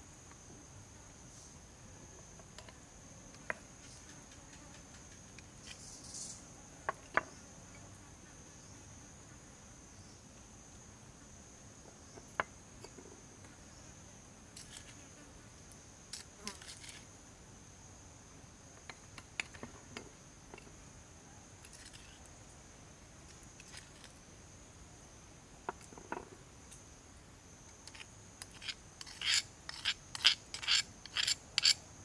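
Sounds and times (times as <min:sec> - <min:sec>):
high-pitched insect chorus: 0:00.0 - 0:32.0
spoon scraping: 0:27.9 - 0:31.8.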